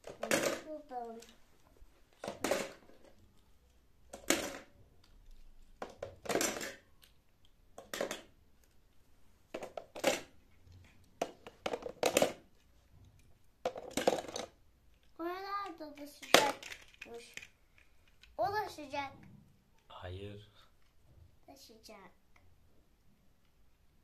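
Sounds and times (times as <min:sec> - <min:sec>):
toy cars clattering in plastic bucket: 0:00.0 - 0:01.3, 0:02.2 - 0:03.2, 0:05.8 - 0:06.8, 0:09.6 - 0:10.4, 0:11.2 - 0:12.5, 0:13.7 - 0:14.6, 0:15.6 - 0:17.5.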